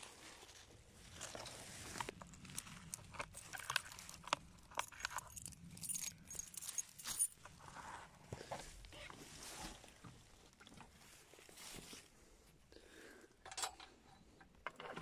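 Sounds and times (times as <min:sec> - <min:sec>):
dry grass rustling: 0:00.0 - 0:04.8
metal clicking and clinking: 0:02.2 - 0:07.5.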